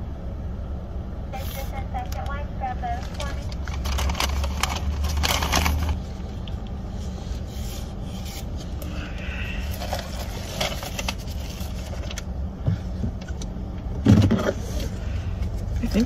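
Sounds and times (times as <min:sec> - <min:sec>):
car engine idling: 0:00.0 - 0:16.0
rubbing and handling noises: 0:02.8 - 0:08.9, 0:09.6 - 0:13.0.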